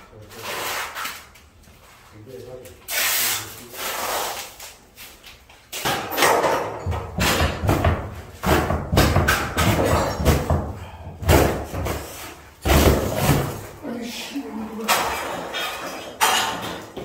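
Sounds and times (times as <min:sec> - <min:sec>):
demolition thuds and crashes: 0:05.9 - 0:13.8.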